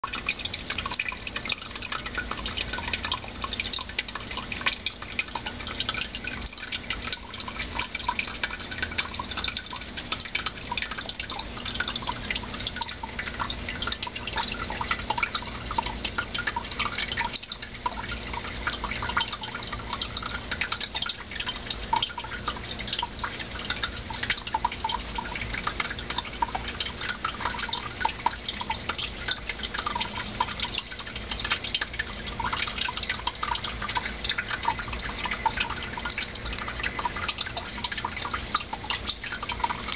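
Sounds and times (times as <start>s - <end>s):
aquarium water bubbling: 0.0s - 39.9s.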